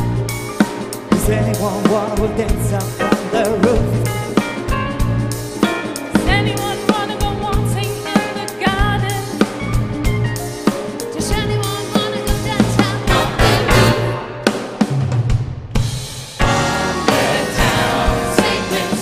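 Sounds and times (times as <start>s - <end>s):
drum kit playing groove: 0.0s - 19.0s
group singing: 12.6s - 14.0s, 16.4s - 19.0s.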